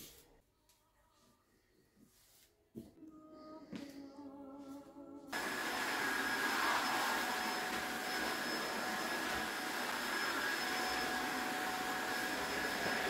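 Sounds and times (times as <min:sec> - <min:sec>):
electric fan motor whirring: 0:05.4 - 0:13.0.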